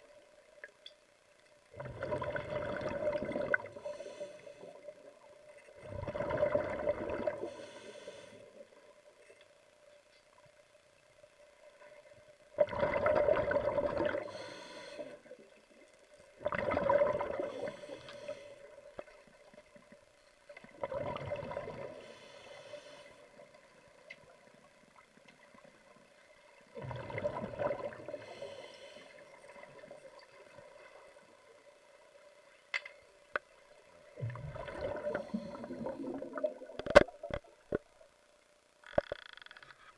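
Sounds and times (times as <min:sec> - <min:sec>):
faint steady hum: 0:00.0 - 0:39.9
underwater water sloshing: 0:00.5 - 0:10.6, 0:11.4 - 0:38.2.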